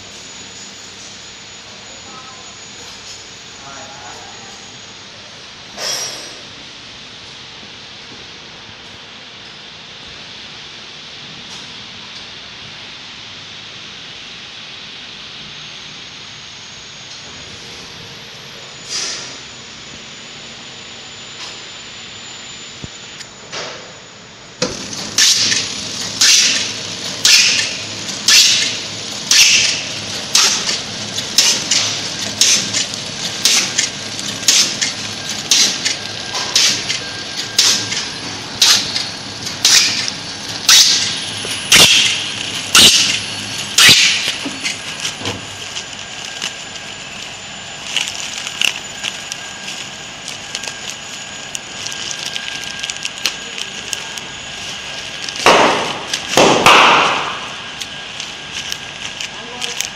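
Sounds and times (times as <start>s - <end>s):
faint steady whine: 0.0s - 59.9s
packing machine snapping and hissing: 17.2s - 19.4s, 24.6s - 59.9s.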